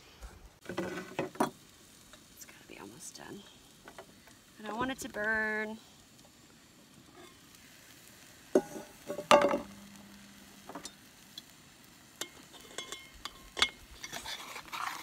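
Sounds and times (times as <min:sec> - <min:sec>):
faint sizzle: 0:00.0 - 0:15.0
spatula tapping and scraping pan: 0:08.5 - 0:09.8, 0:12.2 - 0:15.0
pan lid clattering: 0:08.6 - 0:09.8.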